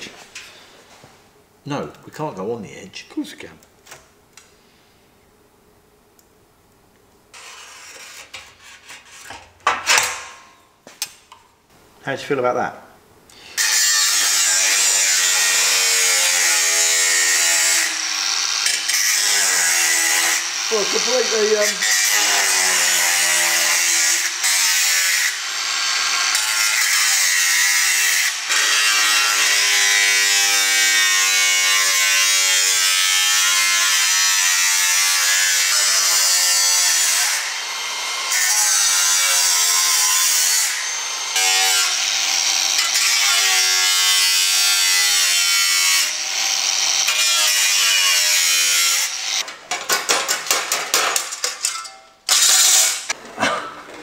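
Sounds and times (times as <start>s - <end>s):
angle grinder cutting steel: 7.4s - 9.2s, 13.4s - 49.5s, 52.3s - 53.2s.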